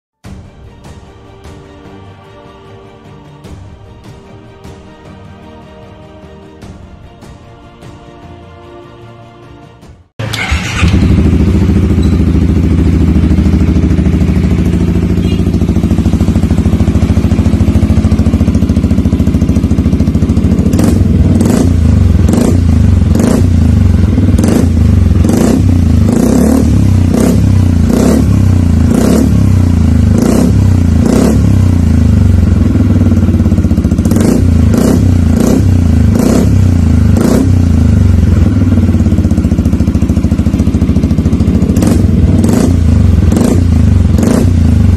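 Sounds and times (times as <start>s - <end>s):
scooter engine throttle blips: 10.2s - 28.1s
scooter engine idling: 10.2s - 44.9s.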